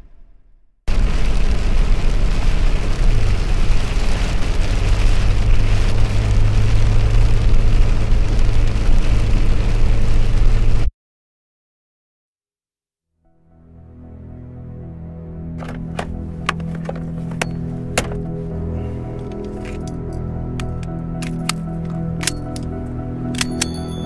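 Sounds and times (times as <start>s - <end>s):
engine and road noise in cab: 1.2s - 10.9s, 15.6s - 23.8s.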